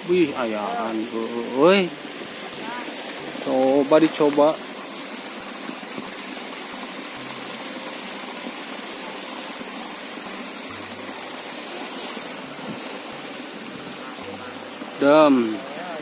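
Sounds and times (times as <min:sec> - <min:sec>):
water rushing: 0:00.0 - 0:16.0
high hiss: 0:08.5 - 0:16.0.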